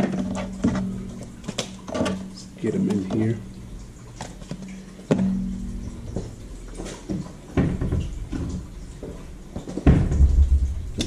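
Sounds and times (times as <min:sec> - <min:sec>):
kitchen knocks and clunks: 0:07.1 - 0:08.6, 0:09.6 - 0:11.0.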